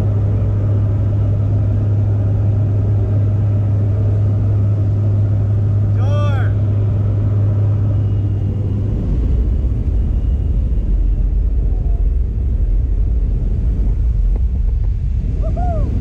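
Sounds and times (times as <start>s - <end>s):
plane engine and propeller drone: 0.0s - 16.0s
rushing air: 4.4s - 16.0s.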